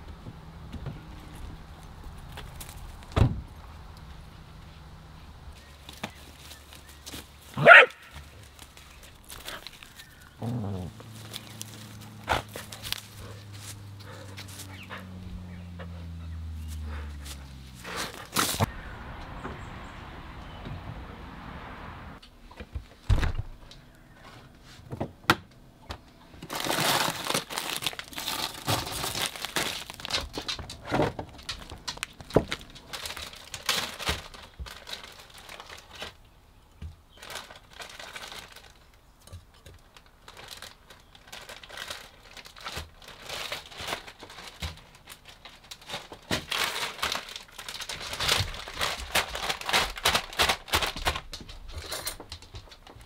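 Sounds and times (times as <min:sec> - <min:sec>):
plastic bag crinkling: 0:05.8 - 0:14.7, 0:26.4 - 0:36.2, 0:37.1 - 0:39.1, 0:39.8 - 0:53.0.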